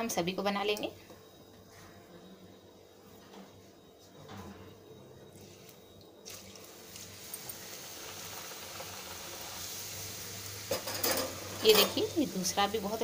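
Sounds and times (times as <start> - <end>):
dough sizzling in hot oil: 5.4 - 13.0.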